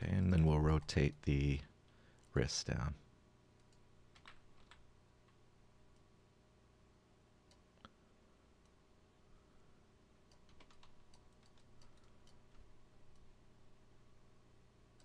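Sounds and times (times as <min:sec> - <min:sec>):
computer mouse and keyboard clicks: 0:03.6 - 0:05.4, 0:10.3 - 0:13.3.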